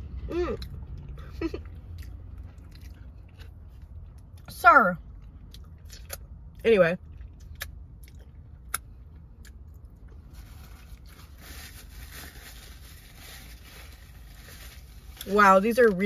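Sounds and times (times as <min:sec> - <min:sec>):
low steady hum: 0:00.0 - 0:16.0
chewing food: 0:00.6 - 0:04.5
paper wrapper crinkling: 0:10.4 - 0:15.2.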